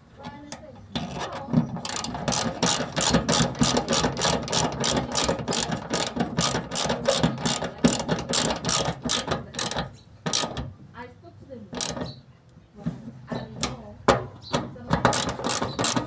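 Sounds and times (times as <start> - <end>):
socket ratchet clicking: 1.8 - 10.7, 11.8 - 12.2, 15.0 - 16.0.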